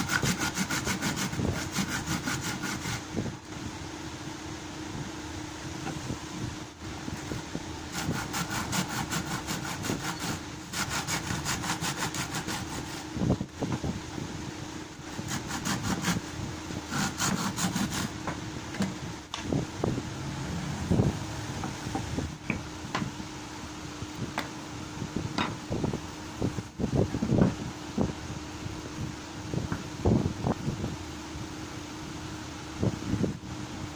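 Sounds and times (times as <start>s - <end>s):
hacksaw sawing through wood: 0.0s - 3.1s, 7.9s - 13.1s, 15.1s - 16.2s, 16.9s - 18.2s
steady hum: 0.0s - 33.9s.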